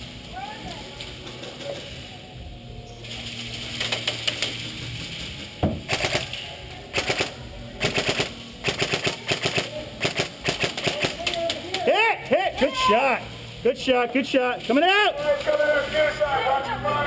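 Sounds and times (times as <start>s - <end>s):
airsoft rifles firing bursts: 5.8s - 11.5s.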